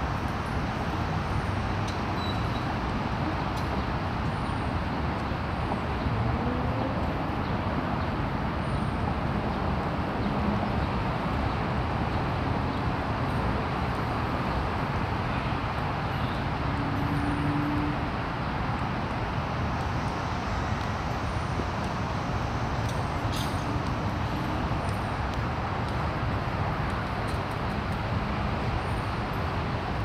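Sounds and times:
city traffic rumble: 0:00.0 - 0:30.0.

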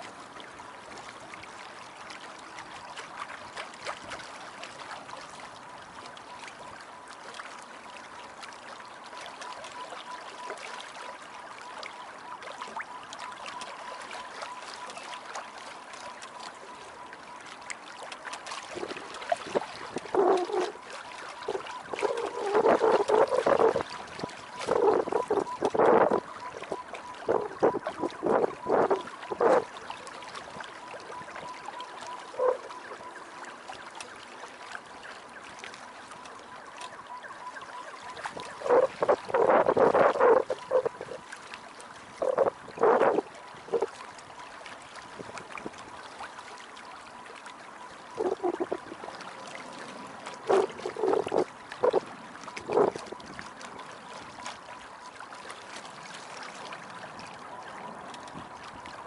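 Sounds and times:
water splashing against boat hull: 0:00.0 - 0:59.0.

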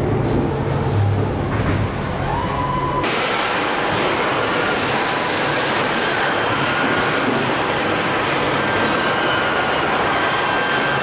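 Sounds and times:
faint high whines: 0:02.1 - 0:11.0
mechanical rush of hiss: 0:02.6 - 0:08.5.

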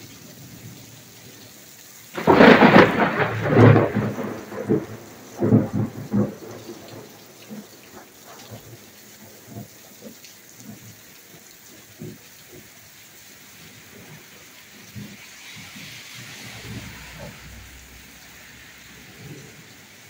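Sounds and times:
heavy rain pouring: 0:00.0 - 0:20.0
drops and drips knocking: 0:06.3 - 0:15.7.

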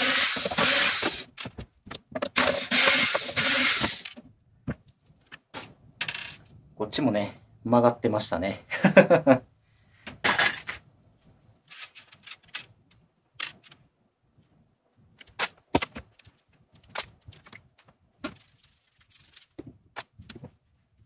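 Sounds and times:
wooden bed parts clattering: 0:00.0 - 0:04.2.

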